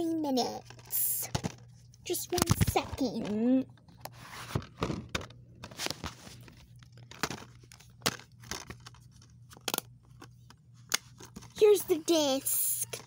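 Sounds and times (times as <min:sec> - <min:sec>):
plastic case clicking and crinkling: 0:02.3 - 0:11.6.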